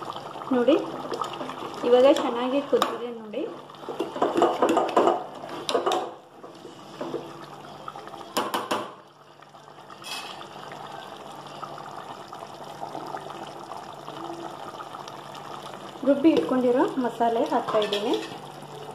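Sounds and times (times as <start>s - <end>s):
gravy bubbling: 0.0s - 18.9s
ladle knocking against pot: 3.9s - 6.2s.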